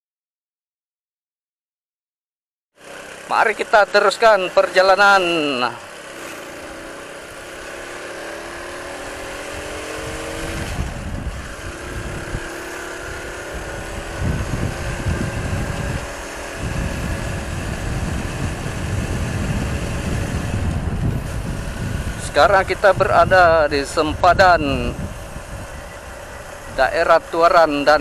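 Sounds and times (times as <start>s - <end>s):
motorcycle engine accelerating: 2.8s - 28.0s
wind buffeting microphone: 7.2s - 28.0s.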